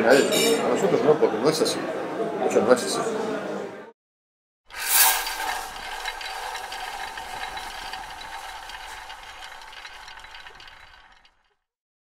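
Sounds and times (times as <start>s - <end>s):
film projector rattling: 4.7s - 11.7s.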